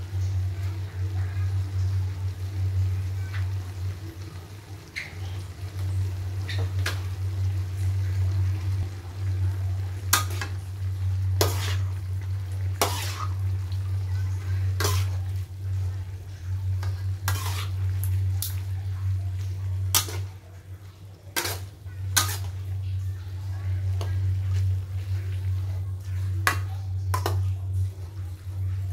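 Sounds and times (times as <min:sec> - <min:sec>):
steady low hum: 0:00.0 - 0:28.9
metal spatula scraping a wok: 0:10.1 - 0:10.6, 0:11.3 - 0:12.0, 0:12.6 - 0:13.5, 0:14.6 - 0:15.4, 0:16.8 - 0:18.5, 0:19.9 - 0:20.4, 0:21.3 - 0:22.7.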